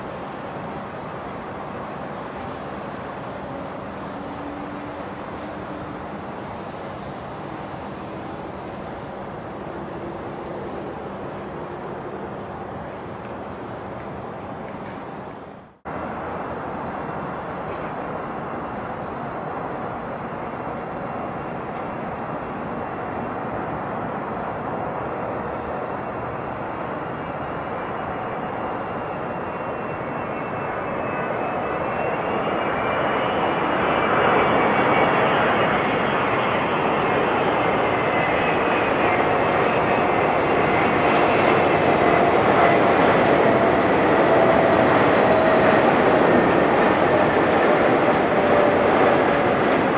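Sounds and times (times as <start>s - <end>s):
faint engine whine: 0.0s - 49.9s
jet engine noise: 0.0s - 49.9s.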